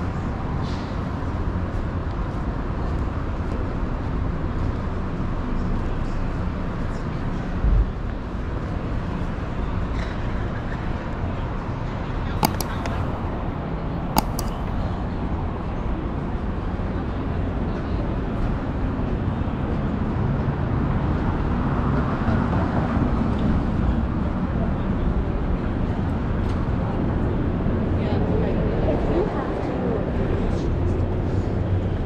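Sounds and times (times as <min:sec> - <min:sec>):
street traffic hum: 0:00.0 - 0:32.0
sharp clicks: 0:12.4 - 0:13.3, 0:14.1 - 0:14.7.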